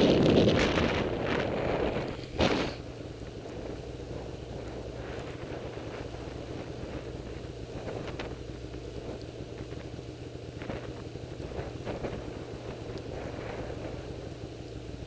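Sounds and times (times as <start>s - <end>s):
wind on microphone: 0.0s - 8.4s
snowmobile engine droning: 0.0s - 15.0s.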